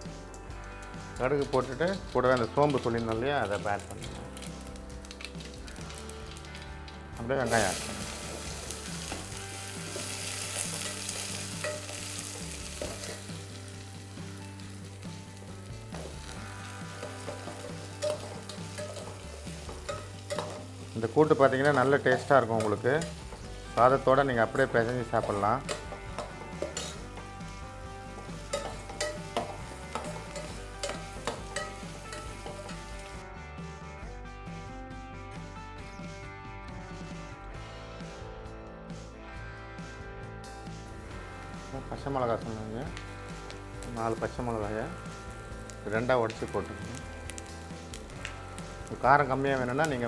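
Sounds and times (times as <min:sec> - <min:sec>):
onions sizzling in hot oil: 0:01.4 - 0:33.2, 0:40.9 - 0:50.0
metal spoon scraping pot: 0:25.2 - 0:27.1.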